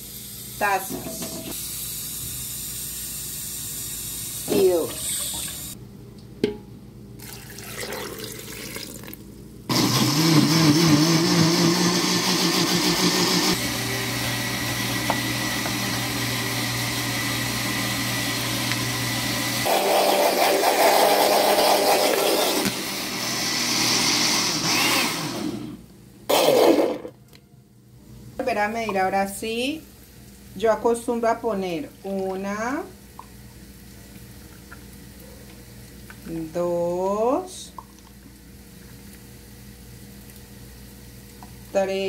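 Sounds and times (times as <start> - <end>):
blender running: 0.0 - 5.8, 9.7 - 27.1.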